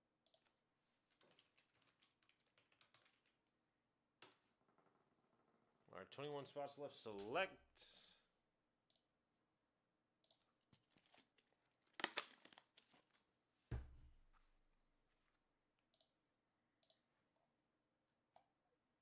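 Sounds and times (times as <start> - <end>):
low thump: 13.7 - 14.2.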